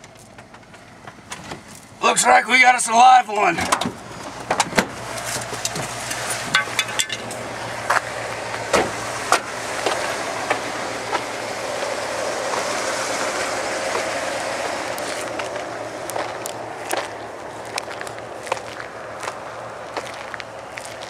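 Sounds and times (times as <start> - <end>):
sharp clicks and knocks: 0.0 - 1.8, 3.6 - 8.1
car engine hum: 0.0 - 21.0
tyres on snow: 0.0 - 21.0.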